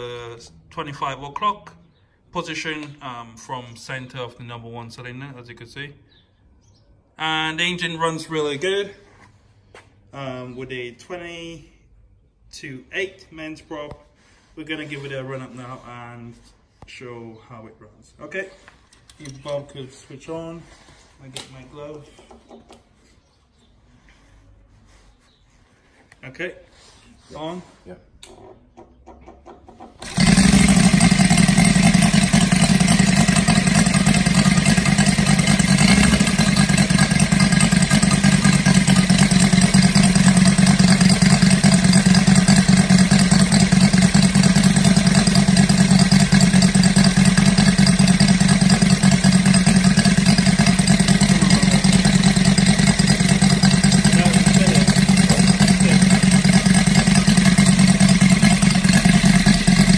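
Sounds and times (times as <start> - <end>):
model aircraft engine running: 30.0 - 59.9.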